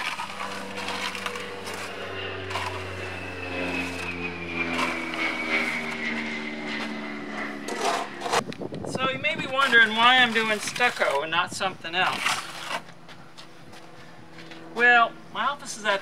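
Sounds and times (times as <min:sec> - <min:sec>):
trowel scraping wet stucco: 0:00.0 - 0:07.0, 0:07.6 - 0:08.4, 0:09.3 - 0:13.0
engine droning: 0:00.0 - 0:16.0.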